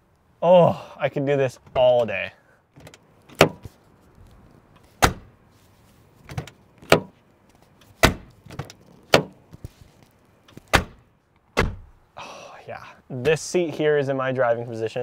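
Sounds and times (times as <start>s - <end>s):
car door latching clicks and clunks: 2.7s - 3.8s, 4.8s - 5.4s, 6.2s - 7.2s, 7.8s - 9.7s, 10.4s - 12.0s.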